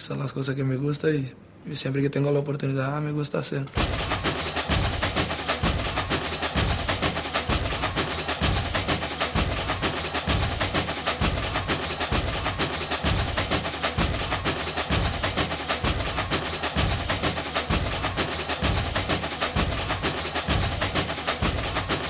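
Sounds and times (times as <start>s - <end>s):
wood block percussion: 3.7s - 22.0s
low drum beat: 3.8s - 22.0s.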